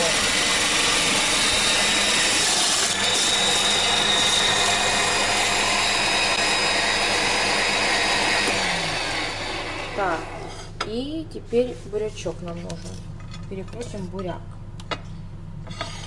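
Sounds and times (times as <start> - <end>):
electric mincer motor whining: 0.0 - 10.5.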